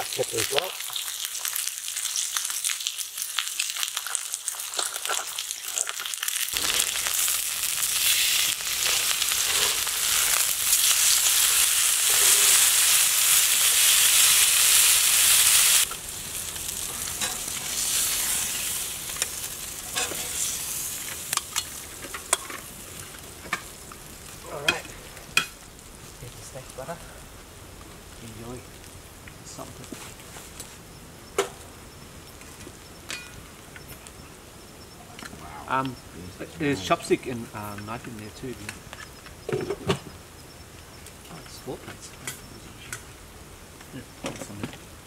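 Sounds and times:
steaks sizzling on a griddle: 0.0s - 29.9s.

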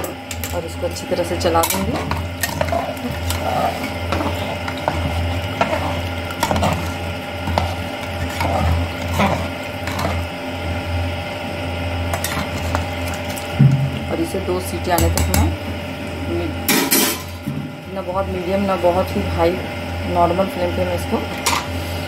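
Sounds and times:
steady low hum: 0.0s - 22.0s
liquid sloshing in a pot: 0.3s - 10.9s, 12.0s - 14.3s
metal ladle scraping a pot: 1.6s - 10.3s, 12.1s - 13.5s.

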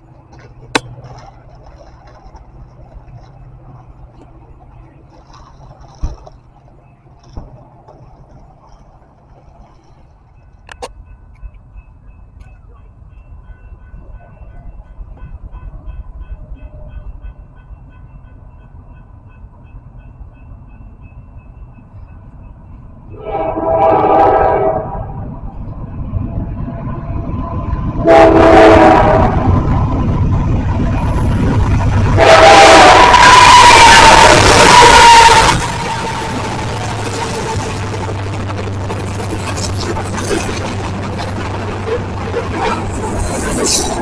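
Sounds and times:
train rumble: 0.0s - 44.0s
locomotive air horn blasts: 23.1s - 25.2s, 28.0s - 29.6s, 32.2s - 37.9s.

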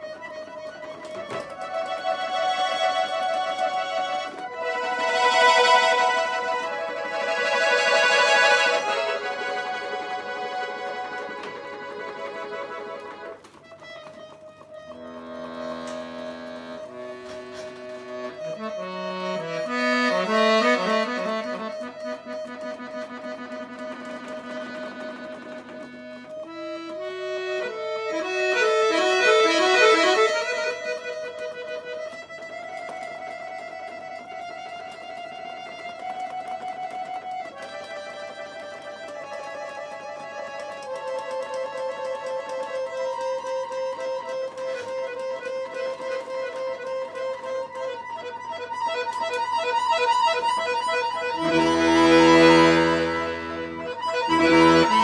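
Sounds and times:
button accordion playing: 0.0s - 55.0s.

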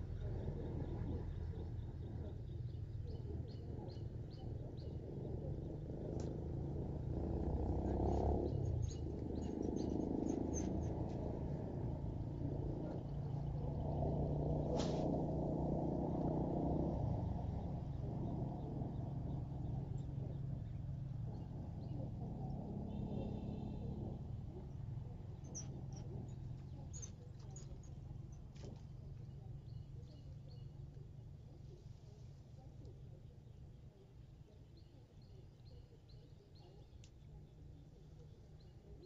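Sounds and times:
low outdoor rumble: 0.0s - 39.0s
faint bird chirps: 17.6s - 39.0s.

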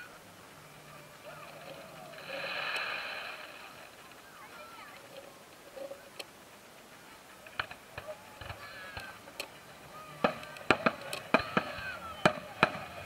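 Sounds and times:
fireworks bursting: 7.6s - 13.0s.

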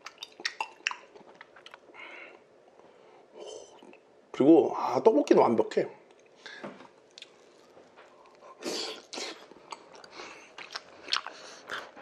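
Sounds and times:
chewing and mouth clicks: 0.0s - 1.9s, 7.1s - 12.0s.

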